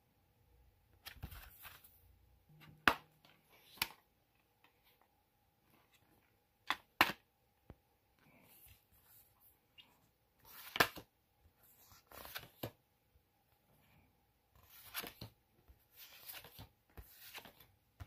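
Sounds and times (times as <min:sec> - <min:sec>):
photo cards rustling and scraping: 0:01.0 - 0:02.0, 0:08.3 - 0:12.8, 0:14.6 - 0:18.0.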